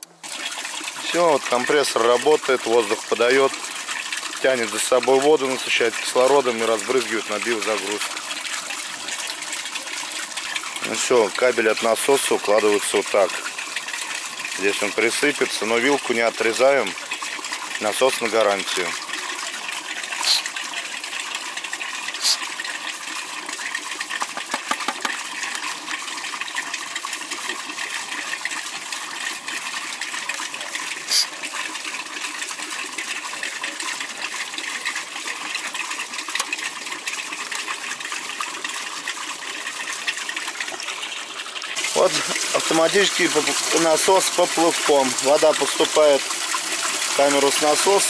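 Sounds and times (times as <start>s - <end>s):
water splashing and running: 0.0s - 48.0s.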